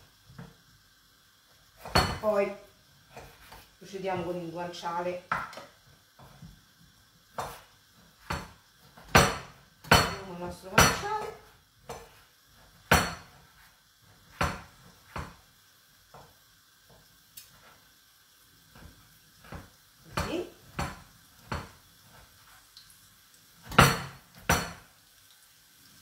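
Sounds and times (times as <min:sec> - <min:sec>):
knife chopping on wooden board: 0:01.8 - 0:02.3, 0:07.4 - 0:07.6, 0:08.2 - 0:11.3, 0:12.9 - 0:13.4, 0:14.3 - 0:15.4, 0:19.4 - 0:21.7, 0:23.7 - 0:24.8.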